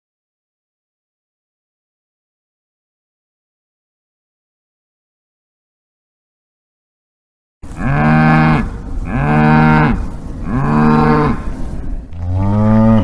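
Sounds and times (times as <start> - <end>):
cow mooing: 7.7 - 11.6, 12.2 - 13.0.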